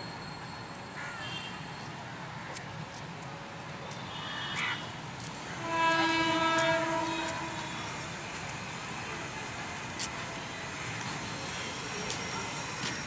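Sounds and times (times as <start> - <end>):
locomotive horn long blast: 5.5 - 8.2.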